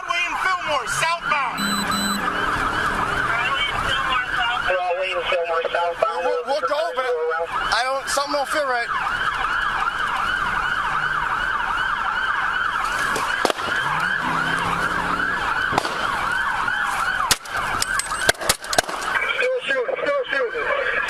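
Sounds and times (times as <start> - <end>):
police siren yelping: 0.1 - 21.0
sharp cracks: 12.8 - 14.2, 15.6 - 19.3.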